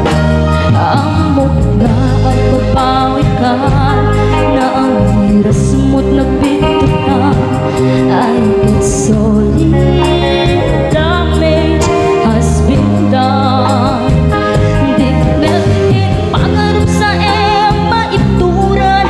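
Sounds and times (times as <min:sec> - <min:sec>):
live band playing: 0:00.0 - 0:19.0
woman singing: 0:00.0 - 0:19.0.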